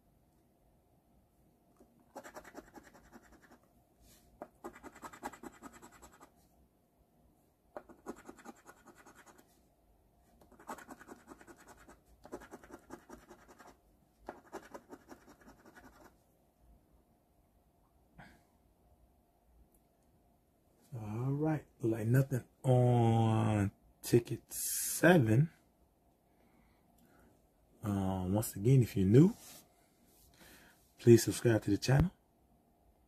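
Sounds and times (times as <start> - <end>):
scratching lottery ticket: 2.1 - 3.6, 4.5 - 6.3, 7.8 - 9.5, 10.4 - 16.2.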